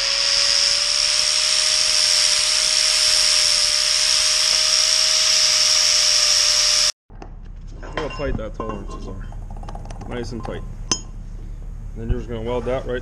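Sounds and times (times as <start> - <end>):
angle grinder grinding steel: 0.0 - 7.0.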